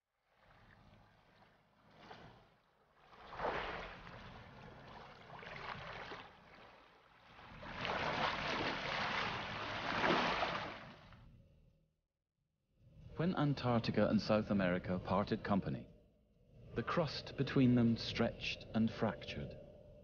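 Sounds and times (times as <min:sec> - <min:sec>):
whooshing rushes of water and spray: 0:03.1 - 0:06.5, 0:07.4 - 0:11.0.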